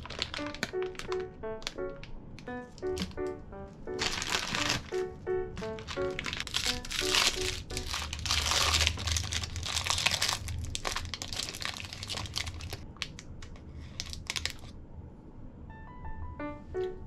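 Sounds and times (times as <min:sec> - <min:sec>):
foil wrapper crinkling: 0:00.0 - 0:02.1, 0:03.9 - 0:14.7.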